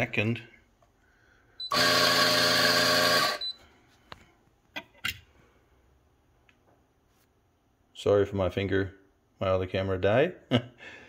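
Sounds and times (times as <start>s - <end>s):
coffee grinder motor grinding: 1.7s - 3.5s.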